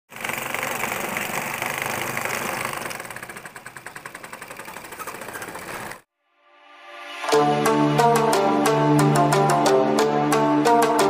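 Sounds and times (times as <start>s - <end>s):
small electric motor running: 0.1s - 6.0s
music: 6.1s - 11.0s.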